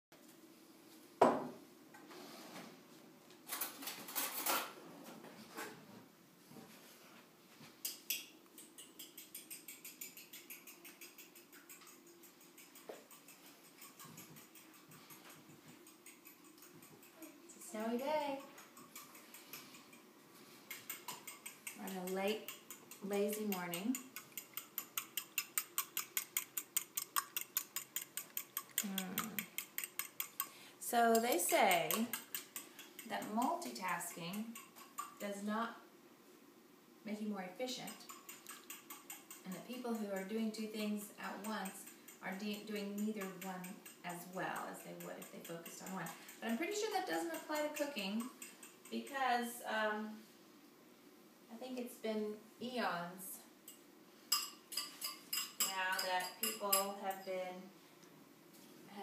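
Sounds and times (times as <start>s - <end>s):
fork beating eggs in ceramic bowl: 7.8s - 35.4s, 37.2s - 49.6s, 53.7s - 57.3s.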